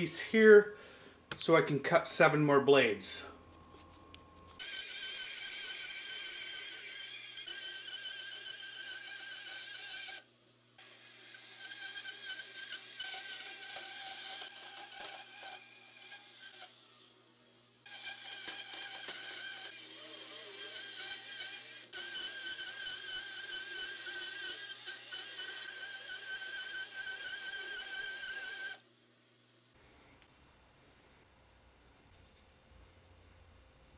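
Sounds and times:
band saw cutting wood: 4.5 - 17.1, 17.9 - 28.8.

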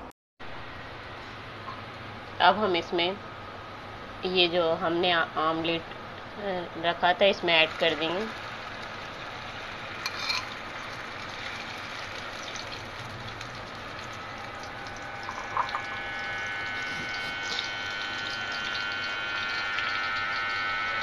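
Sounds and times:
omelette sizzling in a frying pan: 7.6 - 21.0.

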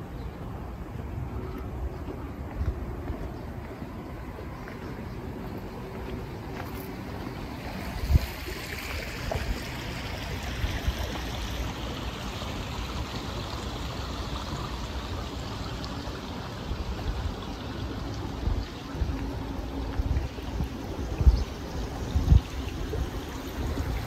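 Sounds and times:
wind rumble on microphone: 0.0 - 4.5, 7.2 - 12.2, 16.6 - 24.0
running water rushing: 0.0 - 24.0.

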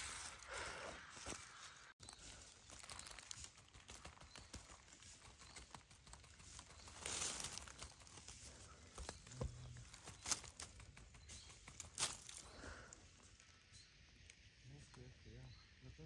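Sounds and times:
footsteps in dry leaf litter: 0.0 - 12.6
twigs snapping: 2.4 - 13.5.

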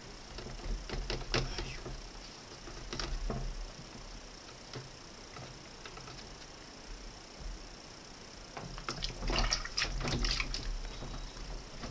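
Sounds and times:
hands scrubbing plastic fan blades: 8.7 - 11.9.

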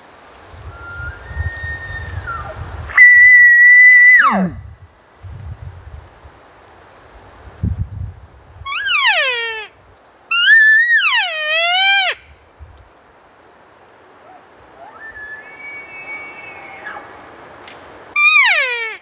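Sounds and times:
elk calls: 1.9 - 4.6, 8.7 - 9.7, 10.3 - 12.2, 14.3 - 17.2, 18.2 - 19.0
distant elk bugling: 8.7 - 9.7, 10.3 - 12.2, 14.2 - 17.3, 18.2 - 19.0.

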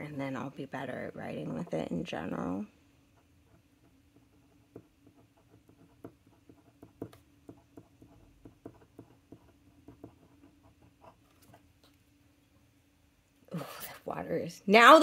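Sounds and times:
pen nib scratching on paper: 3.1 - 11.7.

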